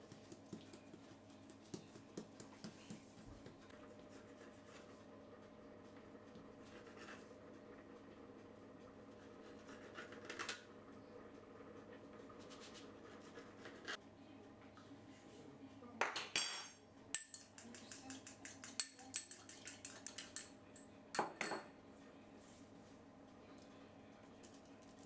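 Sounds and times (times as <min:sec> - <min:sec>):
pastry brush clinking on ceramic bowl: 0:16.4 - 0:21.7.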